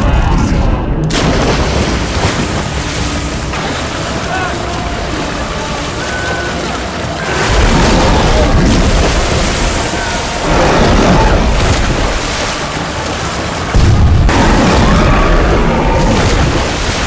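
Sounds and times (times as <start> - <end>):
heavy water splashing: 1.1 - 17.0
booming hits: 13.7 - 16.8.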